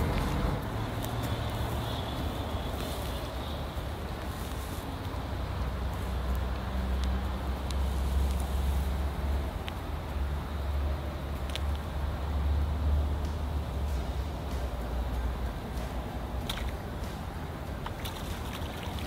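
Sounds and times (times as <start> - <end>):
low outdoor rumble: 0.0 - 19.0
faint ticks: 4.2 - 8.5.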